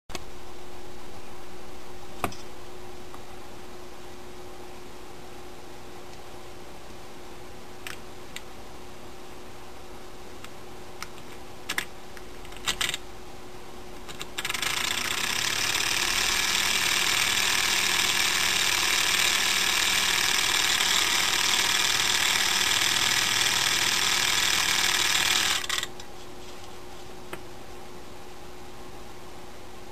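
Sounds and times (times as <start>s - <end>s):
small motor rattling buzz: 14.4s - 25.9s.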